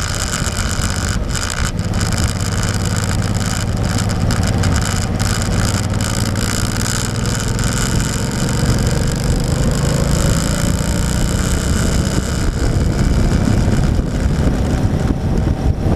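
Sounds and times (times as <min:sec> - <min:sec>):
motorcycle engine cruising: 0:00.0 - 0:15.9
wind noise on microphone: 0:00.0 - 0:15.9.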